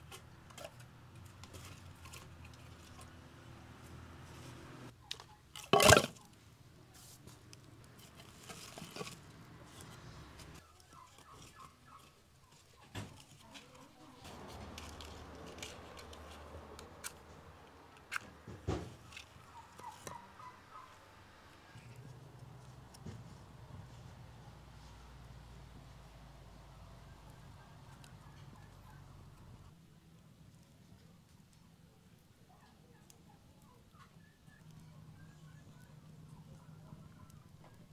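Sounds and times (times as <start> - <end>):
firewood logs knocking and clattering: 5.6 - 6.2
rustling: 5.6 - 20.9.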